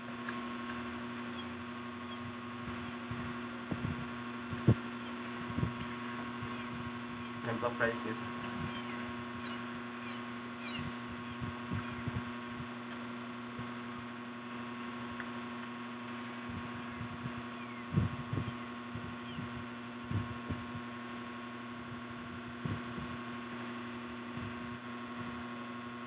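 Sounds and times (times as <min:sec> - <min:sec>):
steady hum: 0:00.0 - 0:26.0
chewing french fries: 0:00.1 - 0:01.3.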